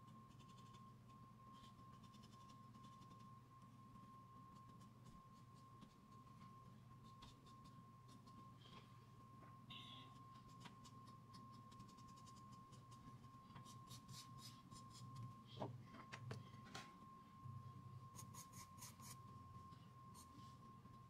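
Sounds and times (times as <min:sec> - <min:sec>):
faint steady tone: 0:00.0 - 0:21.0
pencil scratching on paper: 0:00.2 - 0:00.8, 0:01.5 - 0:03.2, 0:11.6 - 0:13.0, 0:13.6 - 0:15.1, 0:18.2 - 0:19.2.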